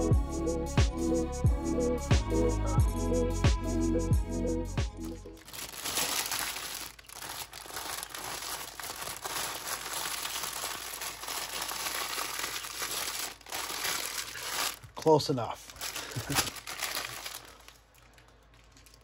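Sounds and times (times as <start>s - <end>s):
background music with a beat: 0.0s - 5.4s
plastic packaging crinkling: 5.3s - 19.0s.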